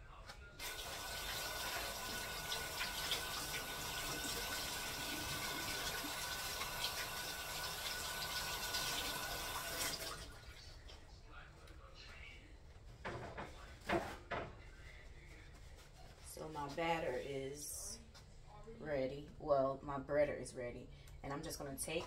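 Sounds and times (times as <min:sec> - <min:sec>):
tap water splashing into sink: 0:00.7 - 0:10.4.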